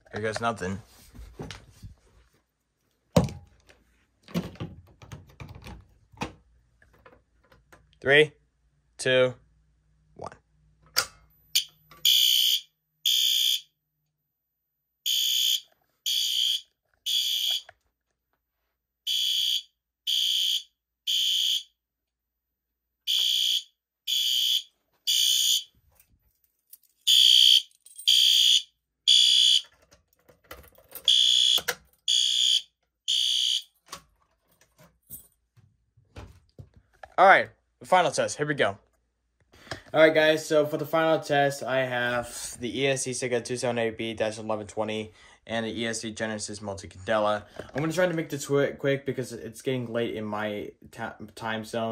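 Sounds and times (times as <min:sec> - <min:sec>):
fire alarm horn blasts: 0:11.5 - 0:13.7, 0:15.0 - 0:17.7, 0:19.1 - 0:21.8, 0:23.1 - 0:25.7, 0:27.1 - 0:29.7, 0:31.1 - 0:33.7.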